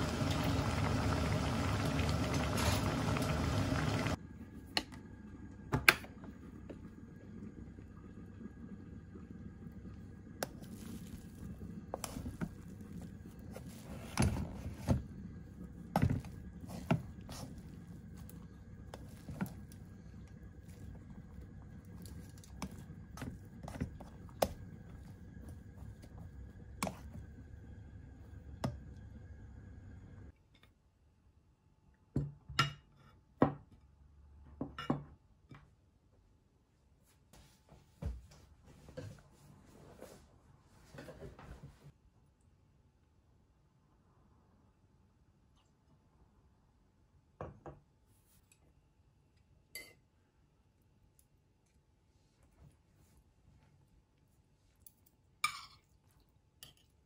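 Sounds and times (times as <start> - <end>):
pot boiling and bubbling: 0.0 - 30.3
low steady hum: 0.0 - 32.0.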